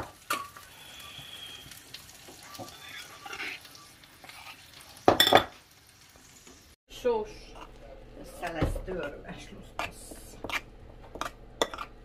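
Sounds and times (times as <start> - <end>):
metal spoon stirring in bowl: 8.4 - 12.0.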